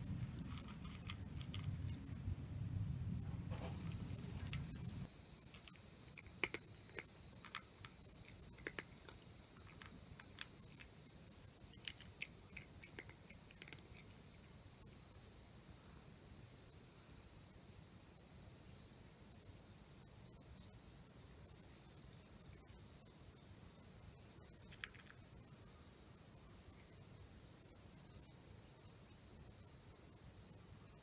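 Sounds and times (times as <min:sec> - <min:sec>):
cat crunching dry kibble: 0:00.0 - 0:02.0, 0:05.4 - 0:14.2, 0:24.7 - 0:25.2
insect chirring: 0:00.0 - 0:31.0.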